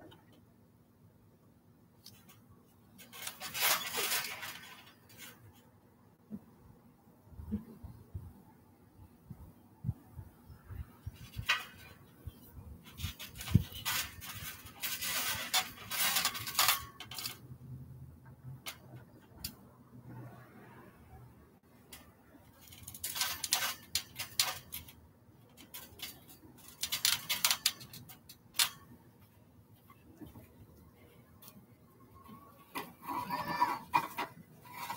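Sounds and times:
trampoline springs creaking: 0:02.1 - 0:05.8, 0:10.7 - 0:17.8, 0:21.9 - 0:29.0, 0:31.4 - 0:34.9.

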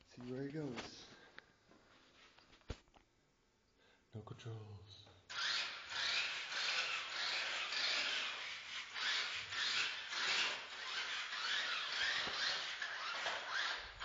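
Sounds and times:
toy car electric motor whirring: 0:05.3 - 0:14.0.

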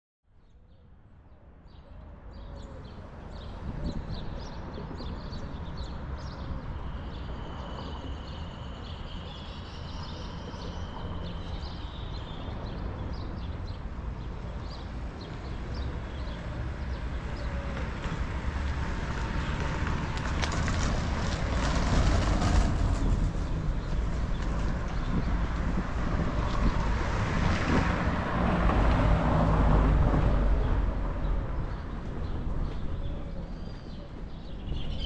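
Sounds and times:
wind: 0:00.2 - 0:35.0
distant traffic rumble: 0:01.9 - 0:35.0
birds chirping: 0:30.6 - 0:35.0.

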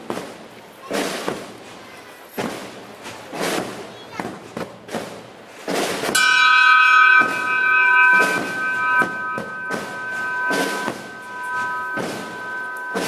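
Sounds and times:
dull noisy thumps: 0:06.2 - 0:13.0
ship's bell ringing: 0:06.2 - 0:13.0.

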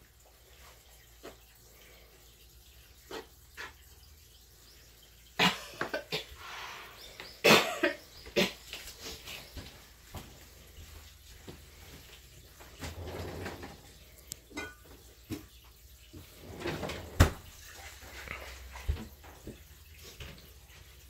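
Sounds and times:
dishes clinking: 0:14.5 - 0:15.1.

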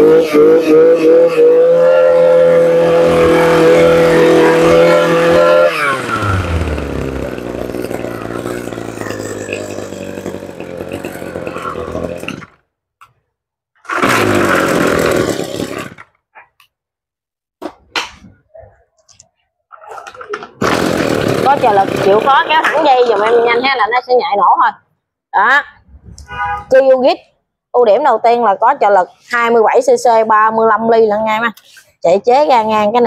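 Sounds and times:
brush cutter engine: 0:00.0 - 0:12.6, 0:13.9 - 0:16.1, 0:20.6 - 0:23.6.

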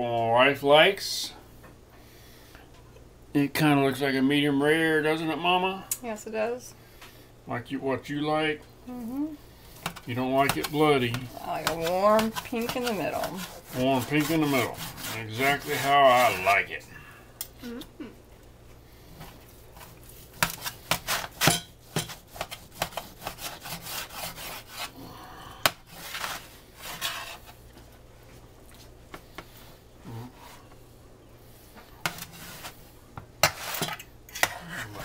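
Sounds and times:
knife scraping cutting board: 0:09.8 - 0:16.7, 0:19.2 - 0:25.0, 0:25.9 - 0:27.6, 0:32.0 - 0:32.8, 0:33.4 - 0:35.0
knife sawing through meat: 0:13.3 - 0:16.6, 0:22.3 - 0:25.0.

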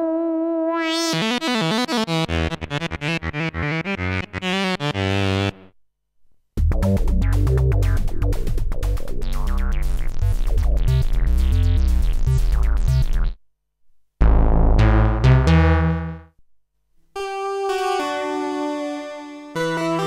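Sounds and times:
bright high synthesizer chords: 0:00.8 - 0:05.7
bass-heavy synthesizer sequence: 0:01.1 - 0:05.7, 0:06.6 - 0:13.4, 0:14.2 - 0:16.3
loud low synthesizer chord: 0:14.2 - 0:16.2.

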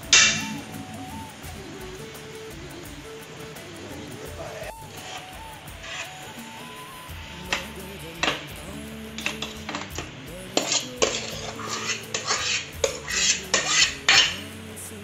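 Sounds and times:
metal ladle scraping and clinking: 0:09.2 - 0:14.4.

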